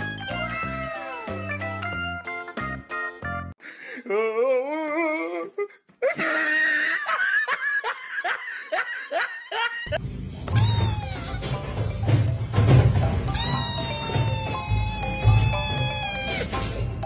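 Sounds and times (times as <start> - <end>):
person laughing hard: 6.0 - 10.0.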